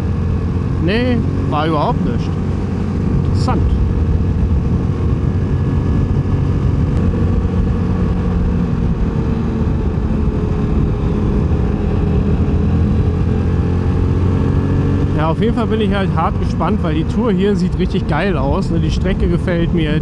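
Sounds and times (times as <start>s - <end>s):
quad engine running: 0.0s - 20.0s
wind noise on microphone: 2.3s - 15.2s.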